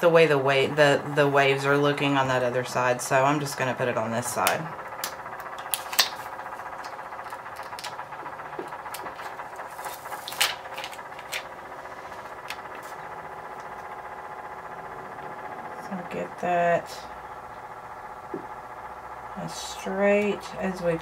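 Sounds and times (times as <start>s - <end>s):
faint steady hum: 0.0s - 21.0s
plastic sticker clicks and crinkles: 5.0s - 8.0s, 8.9s - 11.5s.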